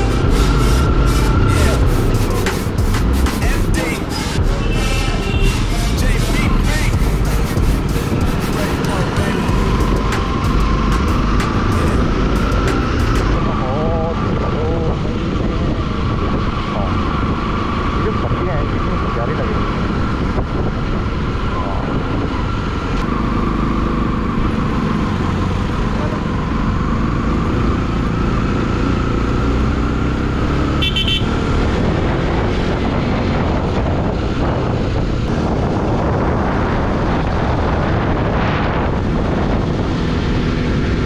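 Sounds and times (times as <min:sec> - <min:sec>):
road and wind noise: 0:00.0 - 0:41.0
motorcycle engine running: 0:04.4 - 0:16.3
vehicle horn toot: 0:04.6 - 0:05.7, 0:30.8 - 0:31.4.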